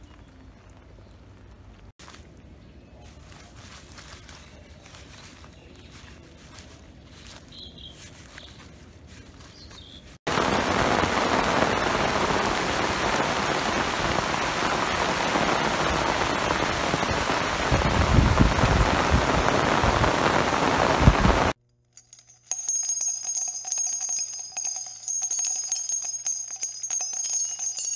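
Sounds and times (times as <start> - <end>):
heavy rain on leaves: 10.3 - 21.6
jingling bell tune: 22.0 - 27.9.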